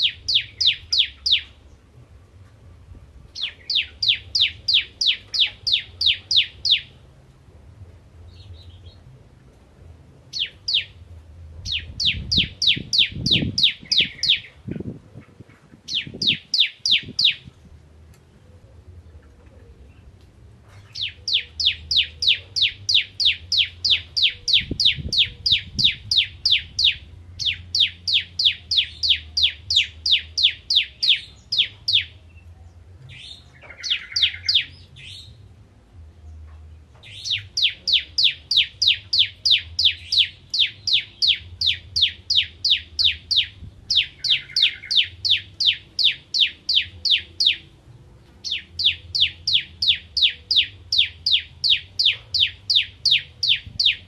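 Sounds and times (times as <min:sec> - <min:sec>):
bird singing rapid high notes: 0:37.1 - 0:47.7, 0:48.4 - 0:54.0.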